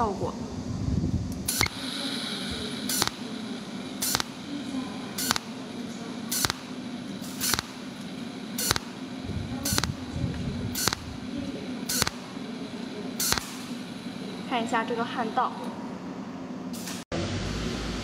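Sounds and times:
steady low hum: 0.0 - 18.0
spot welder snaps: 1.3 - 1.8, 2.9 - 3.3, 4.0 - 4.4, 5.2 - 5.6, 6.3 - 9.0, 9.6 - 11.2, 11.9 - 12.4, 13.2 - 13.8.

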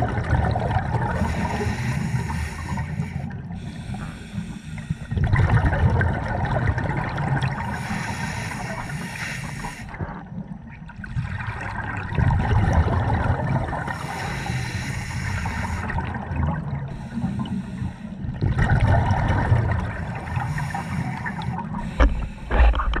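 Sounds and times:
underwater regulator breathing bubbles: 1.0 - 5.7, 7.5 - 10.0, 13.7 - 16.2, 18.6 - 23.0.

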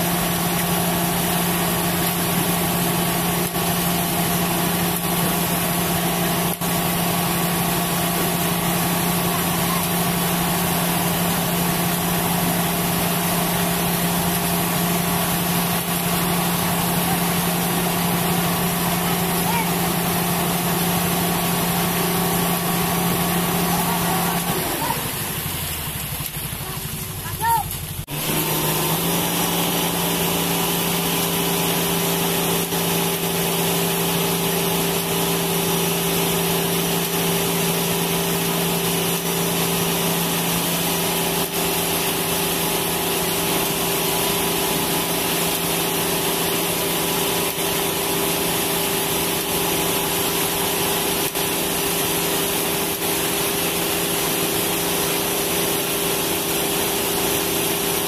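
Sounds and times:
truck engine hum: 0.0 - 58.0.

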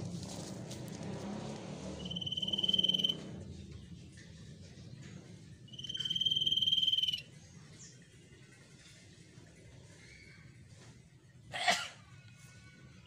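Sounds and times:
bird whistling long notes: 2.0 - 3.2, 5.7 - 7.2.

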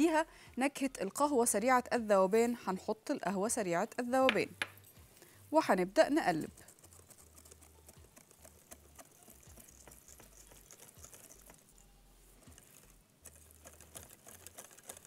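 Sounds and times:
whisk clicking against glass bowl: 6.4 - 11.6.

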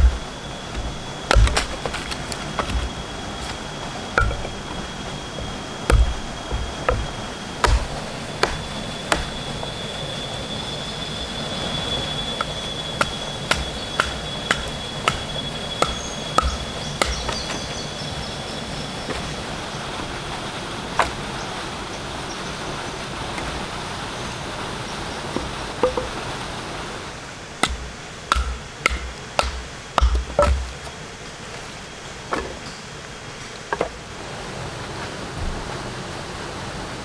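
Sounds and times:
sharp knocks: 0.0 - 3.6, 4.2 - 9.6, 12.4 - 17.7, 27.6 - 30.8
thin high steady tone: 0.0 - 19.4
steady hiss: 0.0 - 37.0.

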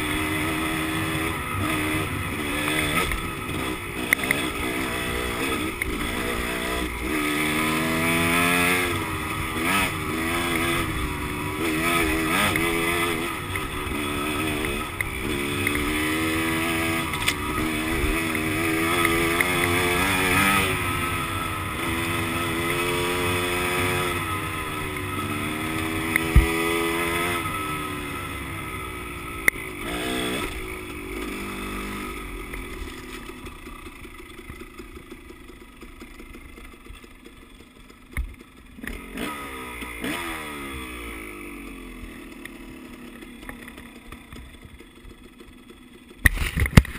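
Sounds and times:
wind and road noise: 0.0 - 34.8
dirt bike engine revving: 0.0 - 36.9, 37.9 - 46.9.

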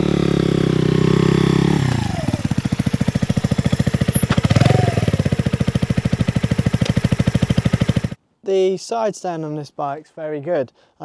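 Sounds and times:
motorcycle engine passing: 0.0 - 8.2.

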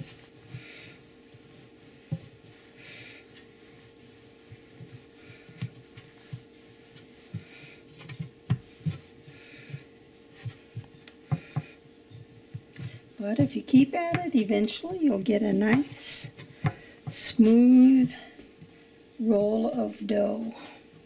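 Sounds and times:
faint steady hum: 0.0 - 21.0
dough thumping on wooden board: 10.5 - 11.8, 12.4 - 14.7, 15.6 - 17.2.

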